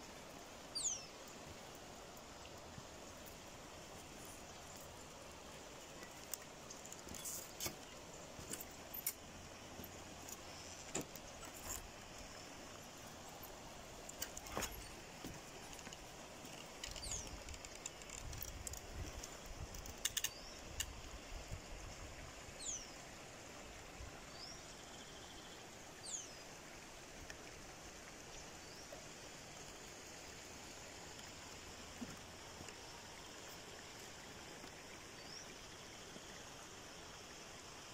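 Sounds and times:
faint outdoor hiss: 0.0 - 37.9
bird chirping: 0.8 - 1.1.

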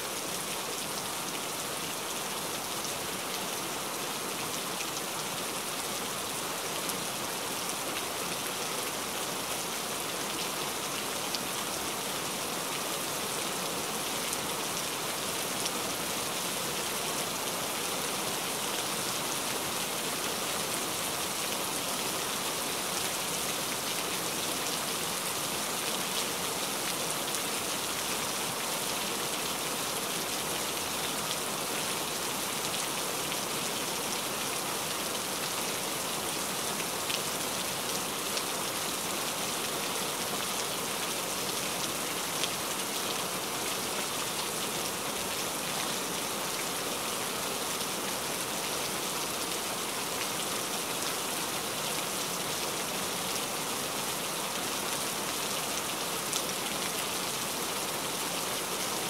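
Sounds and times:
steady rain hiss: 0.0 - 59.0.

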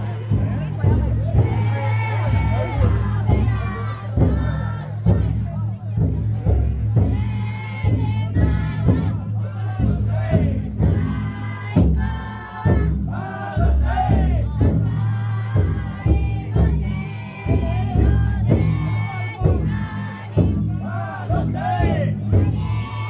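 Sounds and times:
big drum beating: 0.0 - 23.0
crowd chanting and singing: 0.0 - 23.0.

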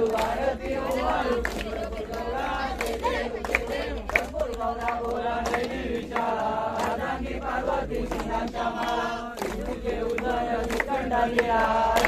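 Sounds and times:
group chanting a devotional song: 0.0 - 12.0
hand claps: 0.0 - 12.0.

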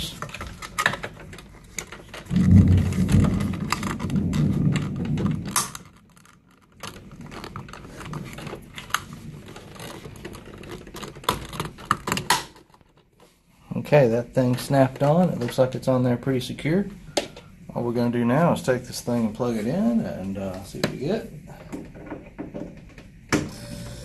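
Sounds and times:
rubbing rumble: 0.0 - 12.0
plastic cover clicking and rattling: 0.0 - 13.3, 21.6 - 23.5.

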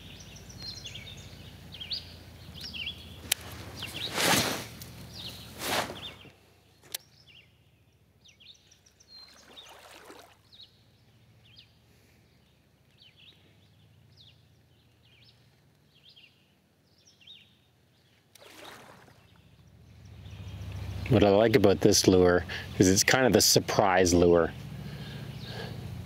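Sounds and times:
small birds chirping: 0.0 - 26.0.

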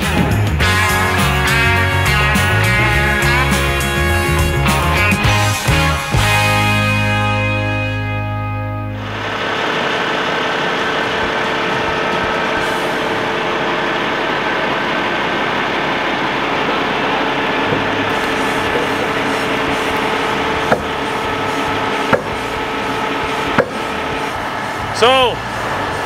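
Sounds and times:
truck engine running: 0.0 - 26.0
sharp knocks: 17.6 - 22.6, 23.5 - 24.0.

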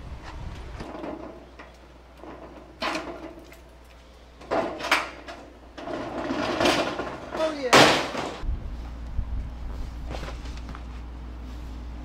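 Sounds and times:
metal door clanking and rattling: 0.8 - 3.4, 4.4 - 8.4.

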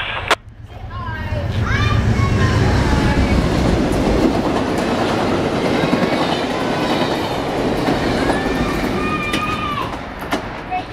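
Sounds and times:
train wheels rushing on rails: 0.0 - 10.9.

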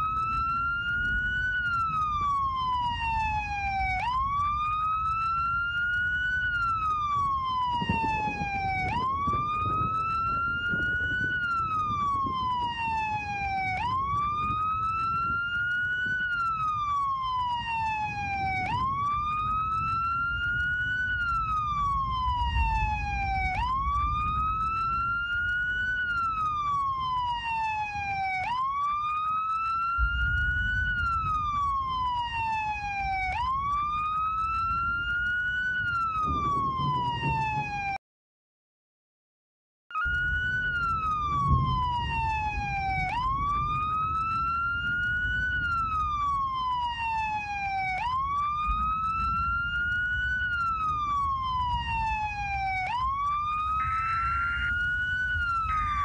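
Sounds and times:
siren wailing: 0.0 - 38.0, 39.9 - 56.0.

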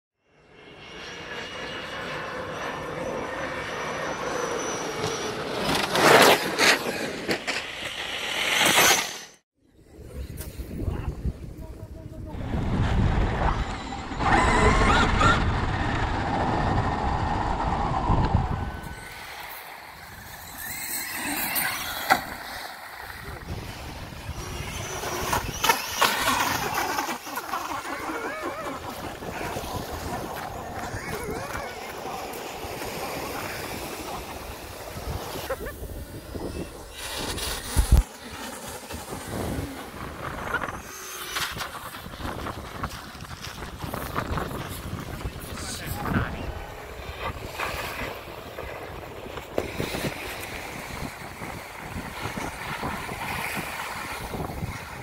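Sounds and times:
rc car motors whining: 1.0 - 9.4, 12.4 - 55.0
voices: 22.9 - 35.9, 42.6 - 47.4.

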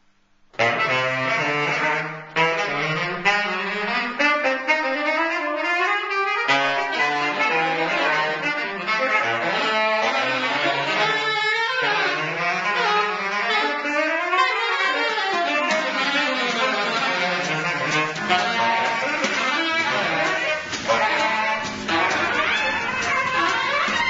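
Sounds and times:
saxophone ensemble playing: 0.6 - 24.0.

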